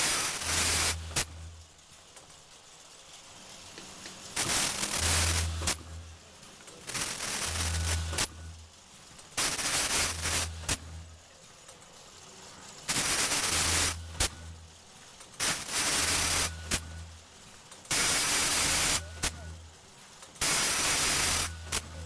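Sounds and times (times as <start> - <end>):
packing machine rushing hiss: 0.0 - 22.0
packing machine sharp clack: 3.1 - 22.0.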